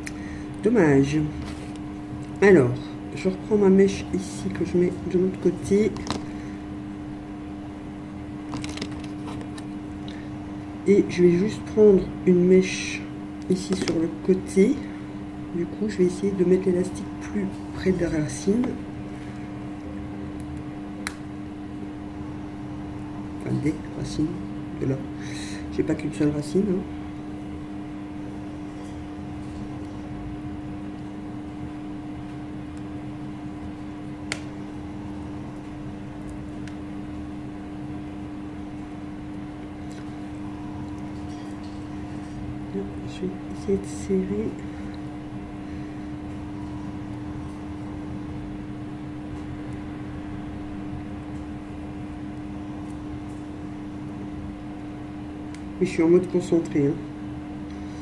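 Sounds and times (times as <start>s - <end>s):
steady background hum: 0.0s - 58.0s.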